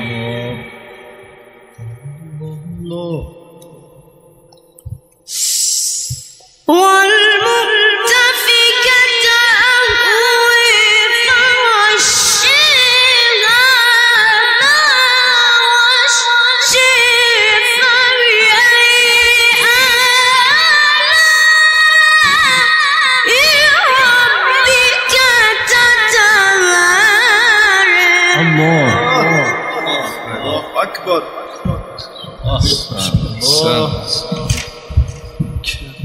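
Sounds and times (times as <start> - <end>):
person chanting high melismatic phrases: 0.0 - 1.0, 1.8 - 4.1, 19.5 - 34.7.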